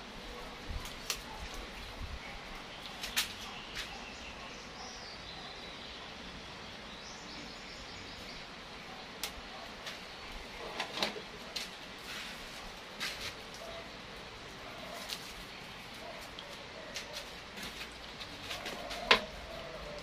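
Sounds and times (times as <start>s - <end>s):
bird chirping: 2.2s - 9.2s.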